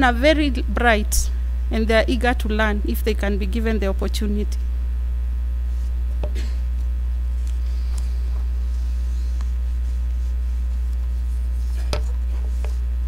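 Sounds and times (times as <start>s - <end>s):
electrical mains hum: 0.0s - 13.0s
paper rustling: 7.3s - 12.9s.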